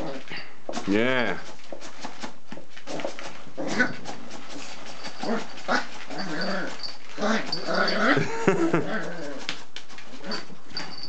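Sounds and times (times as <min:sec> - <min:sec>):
puppy growling and whining: 0:03.6 - 0:04.1, 0:05.2 - 0:09.5.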